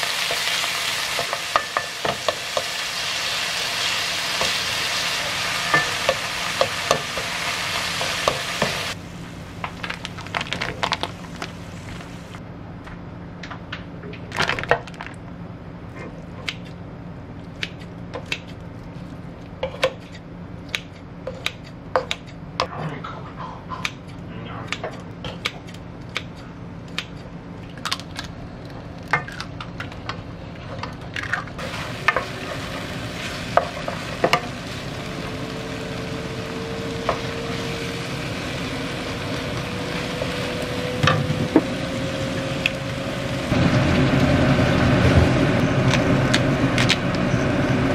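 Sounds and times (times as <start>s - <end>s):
food sizzling in a wok: 0.0s - 9.6s, 31.6s - 45.5s
faint hum rising in pitch: 31.6s - 47.9s.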